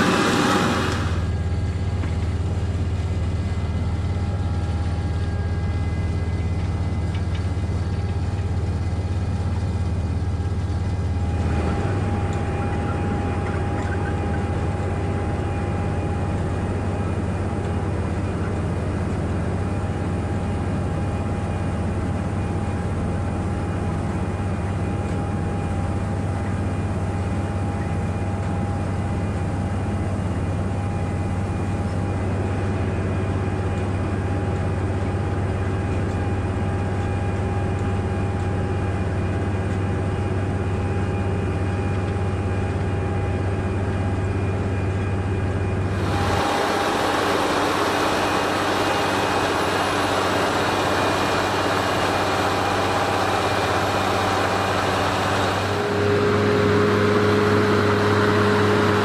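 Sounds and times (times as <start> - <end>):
low engine drone: 0.0 - 59.0
steady whine: 0.0 - 59.0.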